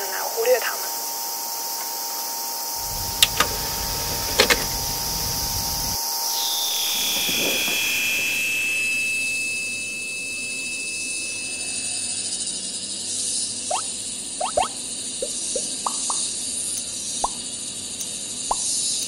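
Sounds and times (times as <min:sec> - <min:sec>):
low rumble: 0:02.8 - 0:06.0
sharp clicks: 0:02.8 - 0:06.0
alarm-like electronic tones: 0:02.8 - 0:12.6
steady high hiss: 0:02.8 - 0:19.0.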